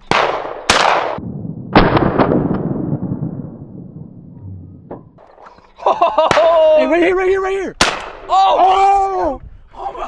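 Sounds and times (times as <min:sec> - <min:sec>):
shotgun shot echoing: 0:00.0 - 0:03.4.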